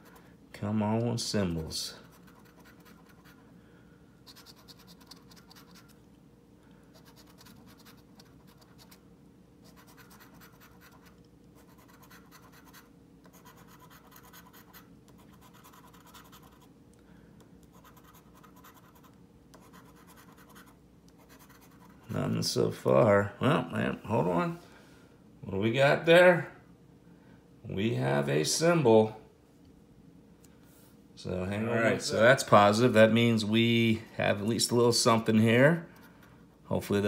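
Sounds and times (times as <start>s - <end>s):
coin scratching lottery ticket: 2.0s - 3.4s, 4.3s - 6.0s, 6.9s - 9.0s, 9.6s - 16.7s, 17.7s - 22.0s.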